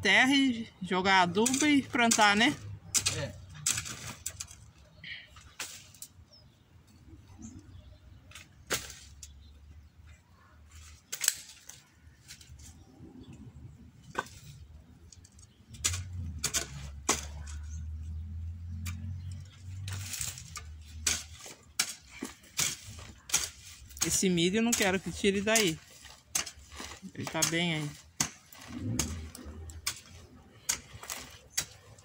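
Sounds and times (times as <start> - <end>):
hoe scraping stony soil: 0.1 - 6.6, 14.0 - 32.0.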